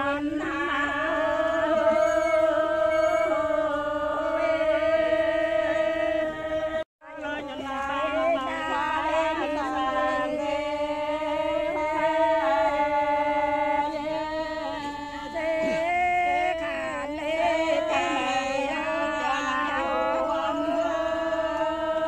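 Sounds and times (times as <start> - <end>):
person chanting melody: 0.0 - 22.0.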